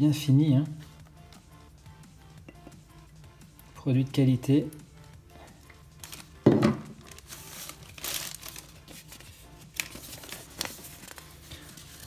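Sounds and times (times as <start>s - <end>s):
paper rustling and crinkling: 6.0s - 12.0s.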